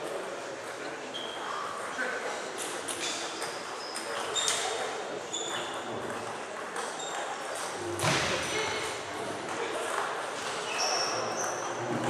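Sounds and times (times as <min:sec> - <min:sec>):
background murmur: 0:00.0 - 0:12.0
table tennis balls bouncing: 0:02.9 - 0:12.0.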